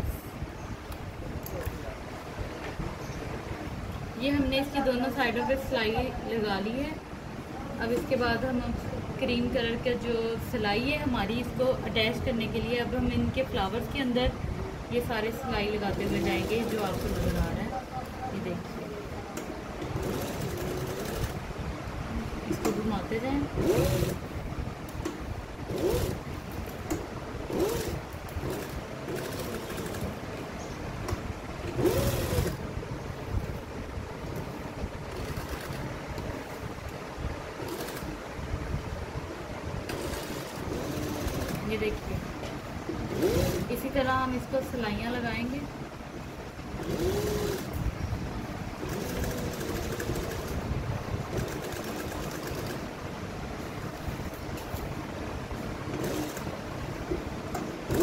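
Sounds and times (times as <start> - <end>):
steady motor hum: 15.0 - 58.0
sewing machine stitching: 15.8 - 17.7, 19.8 - 21.4, 23.5 - 24.3, 25.7 - 26.2, 26.9 - 30.2, 31.6 - 32.6, 35.1 - 35.9, 37.6 - 38.2, 39.9 - 42.0, 43.1 - 43.9, 46.8 - 47.8, 48.8 - 50.6, 51.3 - 52.9, 55.9 - 56.7.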